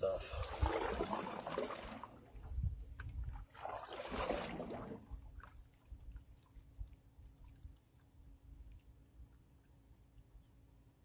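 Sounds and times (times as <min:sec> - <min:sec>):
paddle strokes sloshing water: 0:00.4 - 0:07.7
faint water drips: 0:01.4 - 0:10.4.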